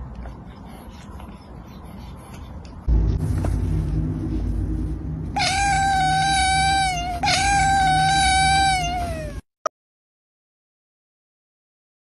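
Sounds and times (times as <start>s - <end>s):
steady low rumble: 0.5s - 8.4s
kitten meowing: 5.4s - 9.4s.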